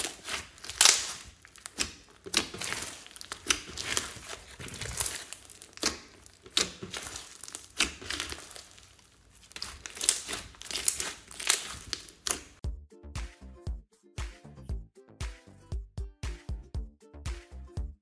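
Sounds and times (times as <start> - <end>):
slime crackling and popping: 0.0 - 12.6
slime squelching: 0.0 - 12.6
music: 12.6 - 18.0.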